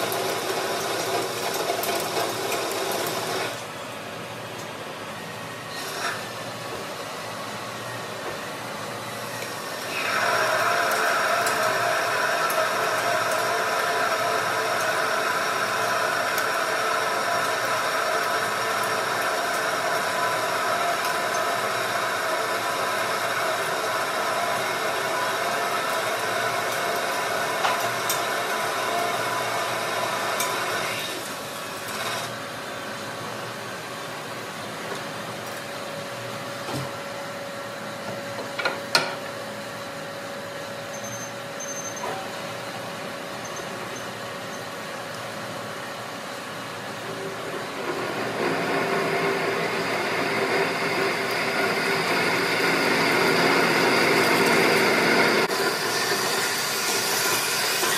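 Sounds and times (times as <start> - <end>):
metal lathe cutting: 0.0 - 3.6, 9.0 - 32.4, 47.0 - 57.9.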